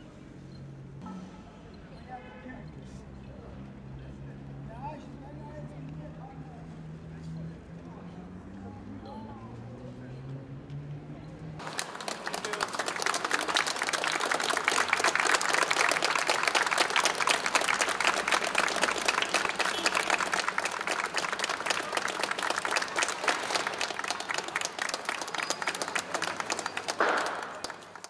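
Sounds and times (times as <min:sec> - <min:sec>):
crowd applauding: 0:11.6 - 0:28.0.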